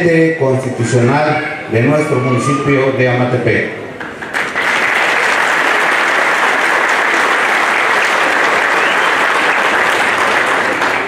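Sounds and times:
audience applause: 4.2s - 11.0s.

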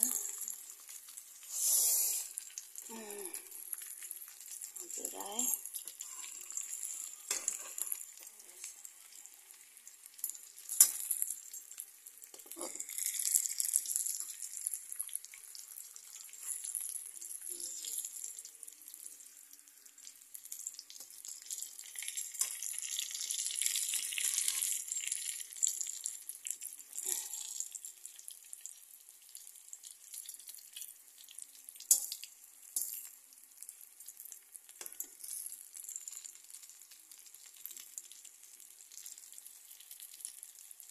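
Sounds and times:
oil sizzling in a pan: 0.0s - 40.9s
metal utensils clinking on pan: 5.9s - 8.0s, 10.7s - 11.2s, 34.8s - 35.6s.

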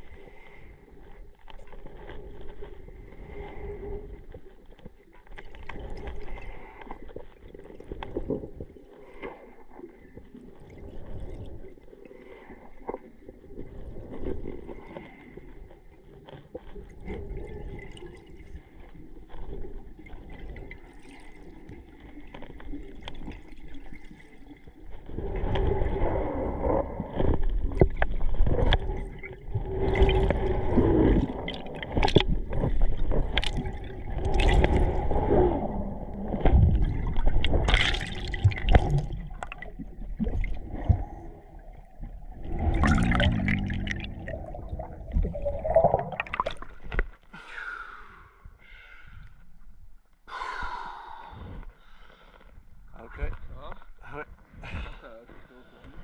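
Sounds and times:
water bubbling and churning: 0.0s - 47.3s
muffled water gurgling underwater: 16.6s - 47.0s.

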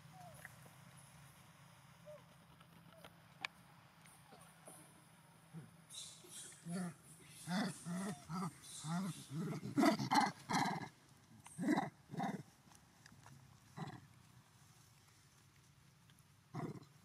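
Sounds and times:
macaques calling: 5.6s - 10.9s.

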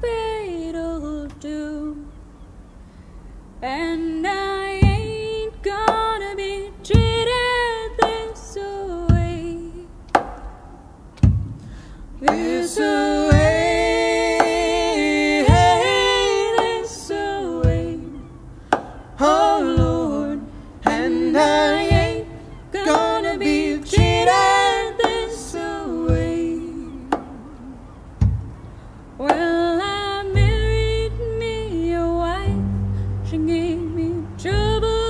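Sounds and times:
voices singing folk song: 3.6s - 10.4s, 11.8s - 28.4s
plucked upright bass: 12.6s - 18.3s, 19.4s - 27.3s, 30.2s - 35.0s.

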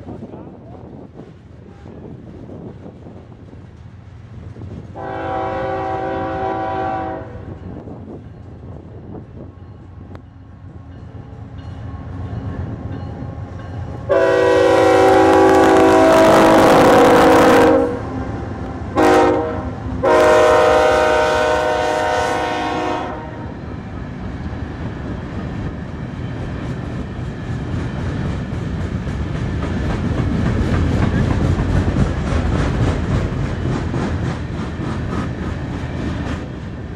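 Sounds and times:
locomotive air horn: 5.0s - 7.6s, 14.1s - 18.4s, 19.0s - 23.6s
train wheel clatter: 23.7s - 36.9s.

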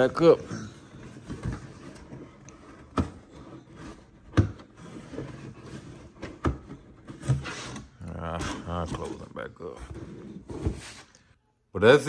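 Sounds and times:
cardboard rubbing and shuffling: 1.0s - 7.8s, 8.4s - 11.1s.

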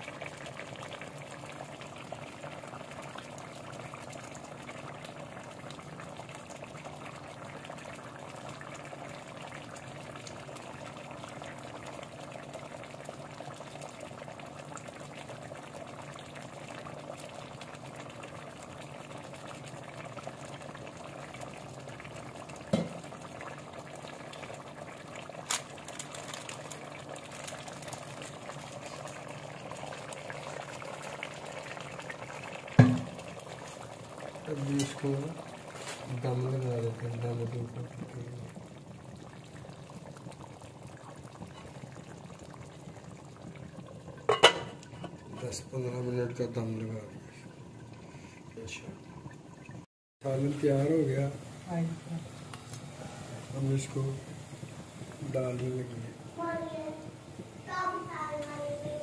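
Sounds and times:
curry bubbling in a pot: 0.0s - 59.0s
dull knock: 32.8s - 33.2s.

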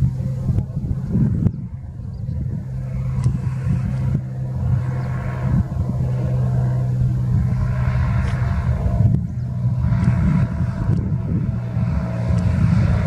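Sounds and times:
propeller plane engine drone: 0.0s - 13.0s.

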